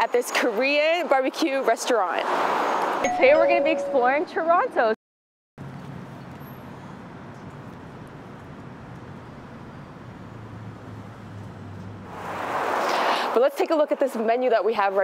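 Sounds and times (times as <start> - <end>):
street traffic noise: 0.0 - 5.0, 5.6 - 15.0
low engine hum: 5.6 - 12.6.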